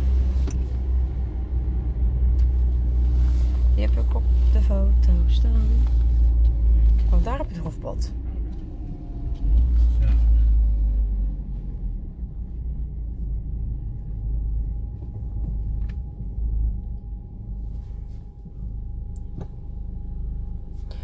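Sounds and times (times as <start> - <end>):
car engine and tyres rumbling: 0.0 - 21.0.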